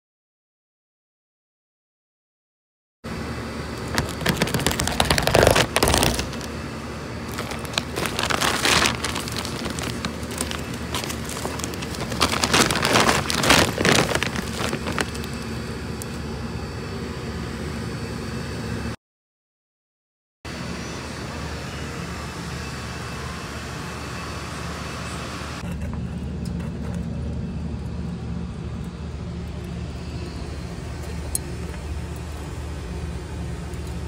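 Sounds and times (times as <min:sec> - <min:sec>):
bag crinkling: 0:03.8 - 0:06.6, 0:07.2 - 0:15.5
charcoal lumps clattering: 0:03.8 - 0:06.6, 0:07.3 - 0:15.5.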